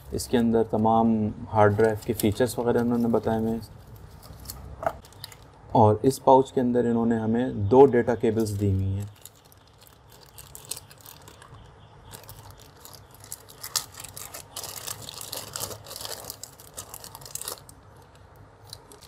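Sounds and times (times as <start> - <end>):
plastic pouch crinkling: 1.7 - 5.6, 8.4 - 19.0.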